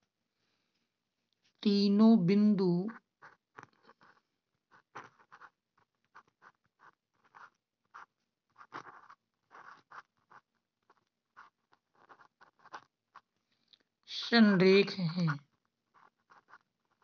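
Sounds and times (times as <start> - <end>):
stylus scratching on tablet screen: 2.6 - 13.4, 14.3 - 17.0.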